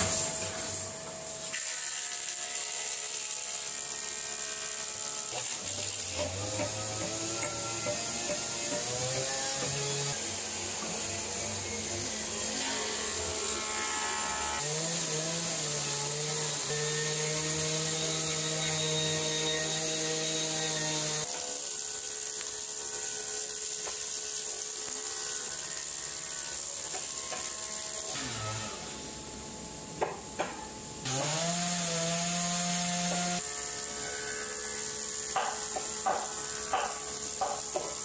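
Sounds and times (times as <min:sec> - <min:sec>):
high hiss of wood cutting: 0:00.0 - 0:29.1, 0:30.3 - 0:38.0
wood planer running: 0:02.5 - 0:21.3.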